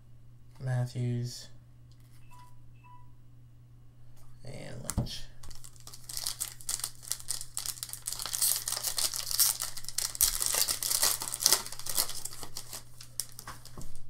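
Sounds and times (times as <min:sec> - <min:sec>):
steady low hum: 0:00.0 - 0:14.0
foil wrapper crinkling and tearing: 0:05.4 - 0:14.0.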